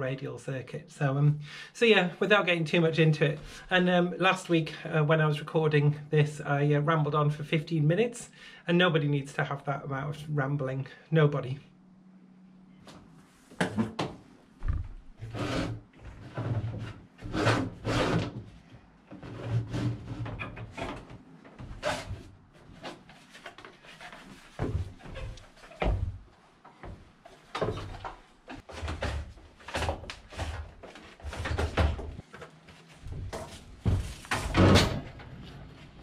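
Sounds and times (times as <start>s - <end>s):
footsteps on wooden floor: 14.6s - 15.2s.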